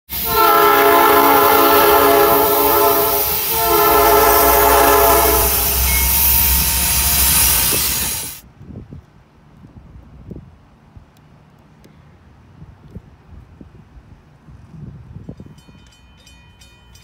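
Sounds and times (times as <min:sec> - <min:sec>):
locomotive air horn: 0:00.1 - 0:08.4
locomotive engine rumble: 0:00.1 - 0:08.4.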